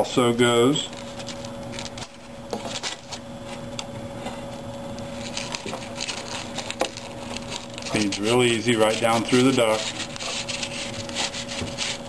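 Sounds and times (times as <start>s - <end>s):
faint steady hum: 0.0s - 12.0s
cable clicking and rustling: 5.0s - 11.9s.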